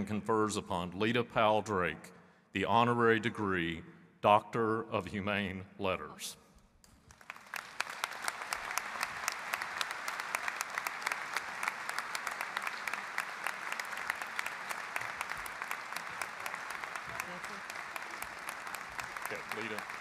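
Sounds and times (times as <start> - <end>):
large audience applauding: 7.0 - 20.0.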